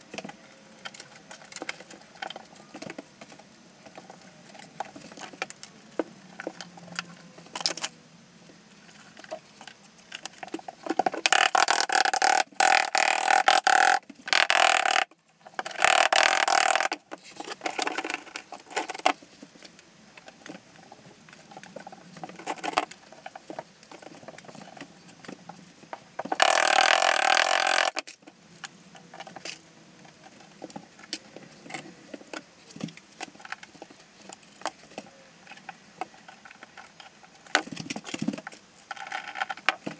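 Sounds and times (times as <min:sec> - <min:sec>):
loud rasping noises: 0:11.2 - 0:15.1, 0:26.3 - 0:28.0.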